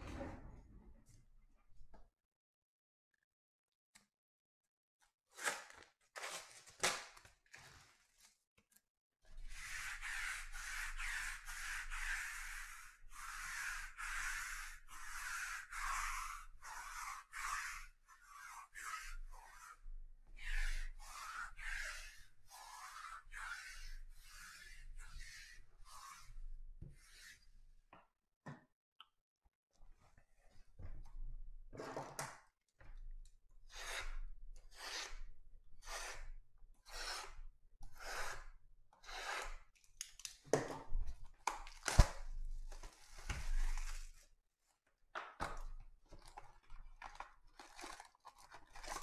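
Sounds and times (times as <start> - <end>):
plastic and foil wrapping tearing: 46.2 - 49.0.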